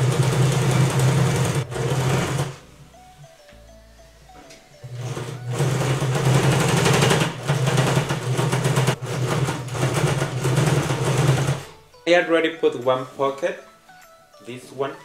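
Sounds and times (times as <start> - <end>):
sewing machine stitching: 0.0 - 2.6, 4.8 - 11.8.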